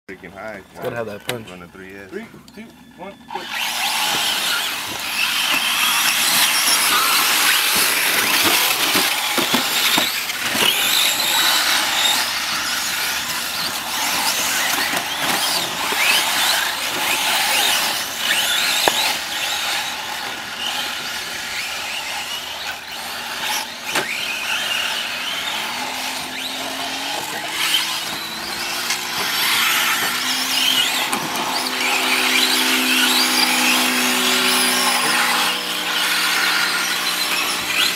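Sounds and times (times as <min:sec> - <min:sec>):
tyres scrabbling on dirt: 0:00.2 - 0:37.9
rc trucks motor whine: 0:00.3 - 0:37.9.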